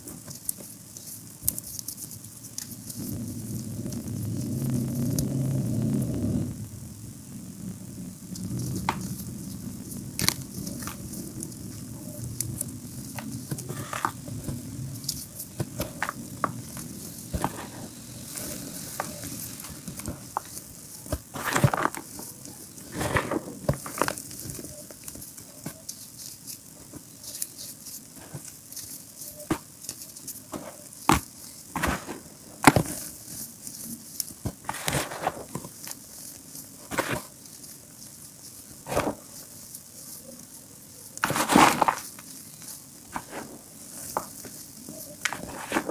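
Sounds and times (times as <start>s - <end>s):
chalk crackling: 0.0s - 6.6s, 7.2s - 32.2s, 32.9s - 45.9s
chalk crunching: 8.3s - 45.9s.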